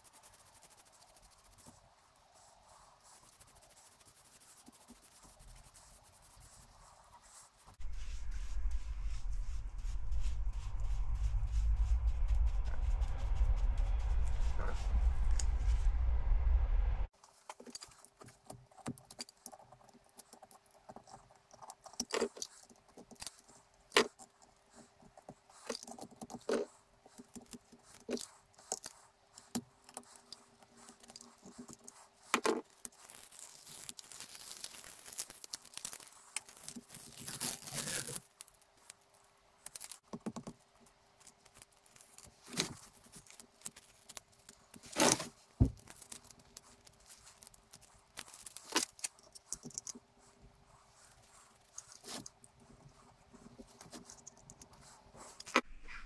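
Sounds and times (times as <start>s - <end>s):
tape tearing: 32.7s - 38.6s, 44.8s - 49.2s
knife cutting masking tape: 33.0s - 38.3s.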